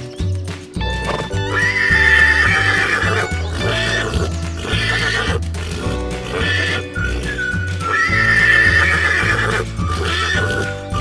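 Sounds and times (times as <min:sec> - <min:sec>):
background music with bass beat: 0:00.0 - 0:11.0
horse whinny: 0:01.1 - 0:10.8.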